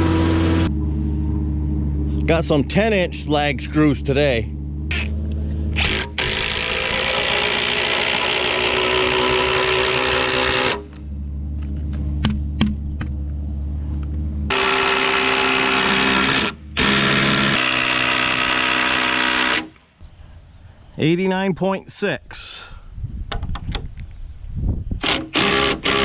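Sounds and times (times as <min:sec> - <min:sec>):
cordless drill motor whining: 0:04.9 - 0:11.0, 0:14.5 - 0:19.7, 0:25.0 - 0:26.0.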